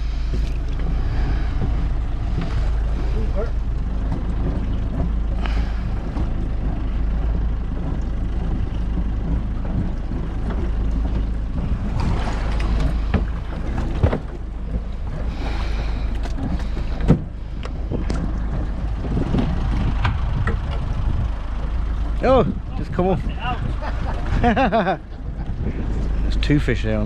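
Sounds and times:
boat engine low rumble: 0.0s - 27.0s
wind on microphone: 16.5s - 26.4s.

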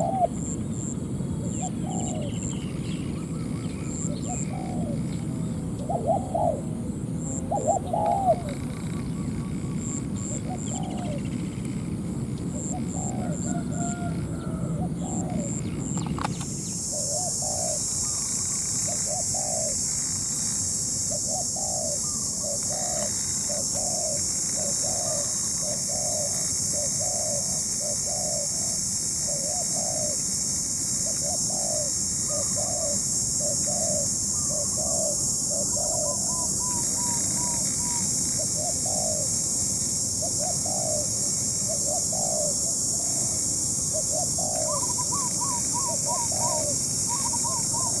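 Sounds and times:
dove cooing: 0.0s - 11.6s, 12.5s - 20.0s, 21.1s - 30.3s, 31.0s - 48.0s
steady high hiss: 0.0s - 48.0s.

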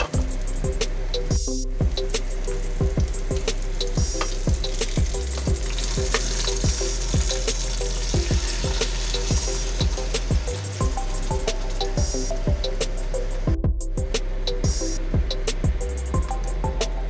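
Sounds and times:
background music with steady beat: 0.0s - 17.0s
food sizzling in hot oil: 1.8s - 12.3s.

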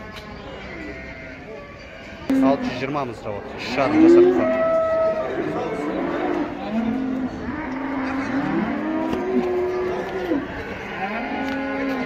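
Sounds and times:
cattle mooing: 2.3s - 3.0s, 3.6s - 12.0s.

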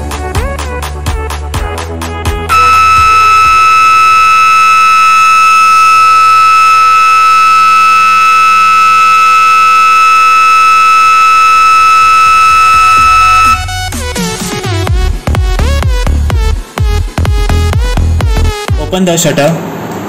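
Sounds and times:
smoke detector alarm tone: 2.5s - 13.8s.

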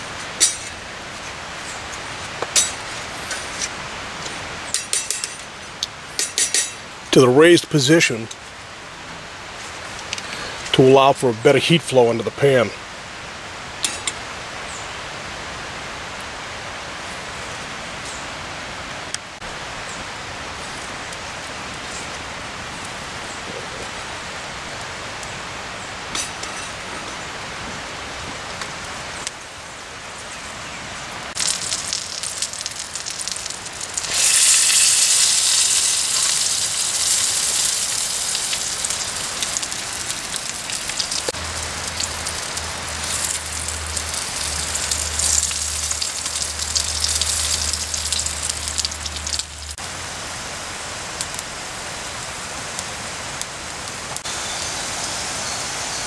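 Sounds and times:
sausages sizzling in a skillet: 31.3s - 49.8s, 54.2s - 56.0s.

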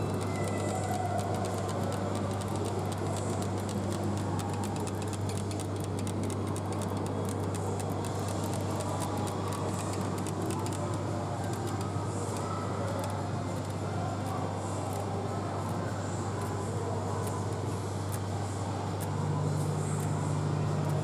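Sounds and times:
fingernails tapping and scratching: 0.0s - 16.6s.

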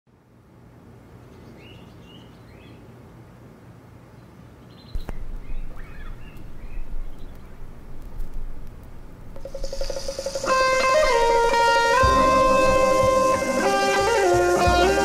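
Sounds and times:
small birds chirping: 1.3s - 3.0s, 4.0s - 15.0s
steady low hum: 5.0s - 15.0s
vinyl surface crackle: 5.0s - 15.0s.

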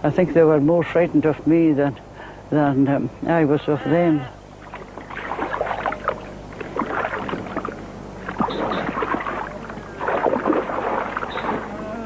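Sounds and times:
deer splashing in water: 4.6s - 12.0s.

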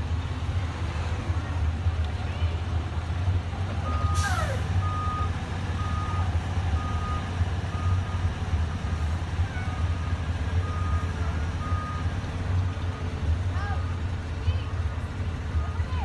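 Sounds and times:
diesel engine idling: 0.0s - 16.0s
reverse alarm beeping: 3.9s - 8.3s.

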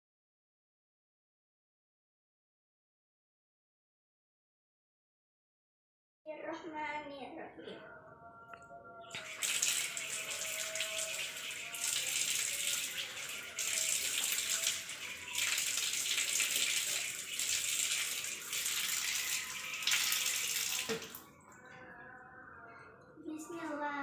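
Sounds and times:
water splashing on hands and face: 9.2s - 21.2s
water running from a tap: 9.2s - 21.3s.

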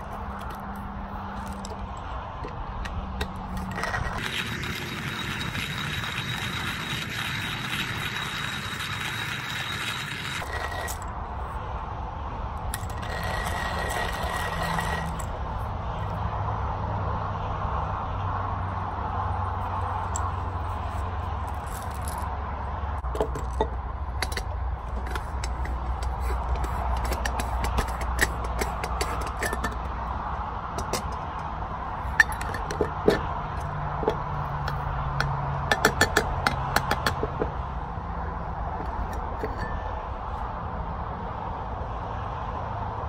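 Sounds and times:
metal clicks and clinks: 23.0s - 30.0s, 32.1s - 37.4s.

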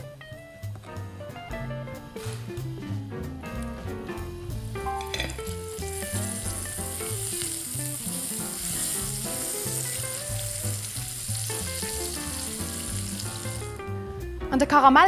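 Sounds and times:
background music: 0.0s - 15.0s
butter sizzling in a frying pan: 4.6s - 13.8s.

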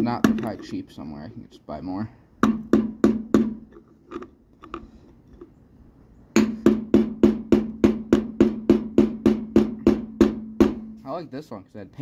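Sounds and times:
mallet striking screwdriver on metal: 0.1s - 0.8s.

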